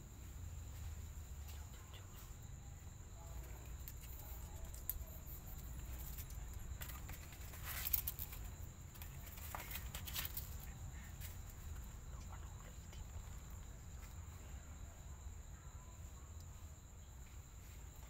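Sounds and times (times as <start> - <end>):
steady low hum: 0.0 - 18.0
soft rustles and clicks: 3.4 - 14.3.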